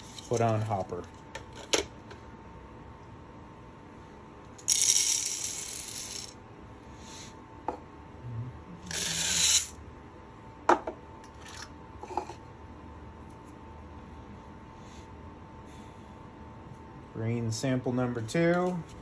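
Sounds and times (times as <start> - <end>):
coffee beans pouring rattling: 4.6 - 6.3.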